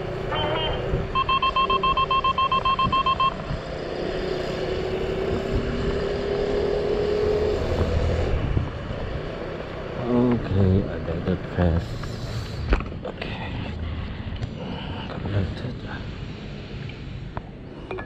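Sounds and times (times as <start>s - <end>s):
wind and tyre rumble: 0.0s - 17.8s
short electronic beeps: 0.3s - 3.6s.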